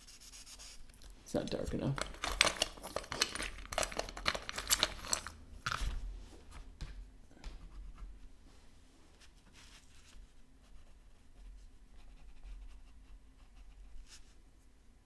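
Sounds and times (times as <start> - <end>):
drawing materials crackling: 1.9 - 6.0.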